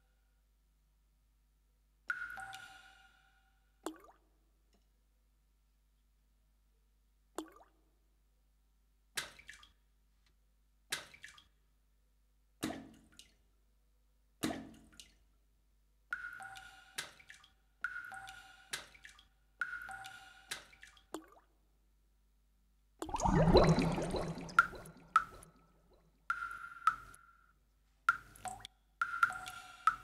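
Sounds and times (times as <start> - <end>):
electronic water-drop plinks: 23.0 - 25.5.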